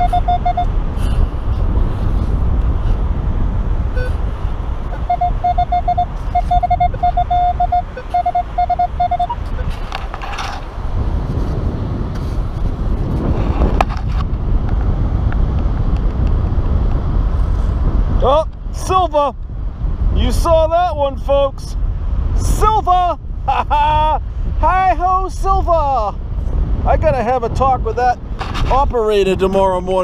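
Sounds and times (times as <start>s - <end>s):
metal detector beeps: 0.0s - 0.8s, 4.9s - 9.8s
low wind rumble: 0.0s - 30.0s.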